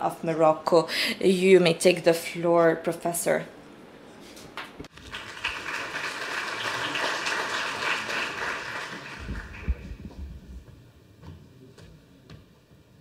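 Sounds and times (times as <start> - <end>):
audience applauding: 4.9 - 10.0.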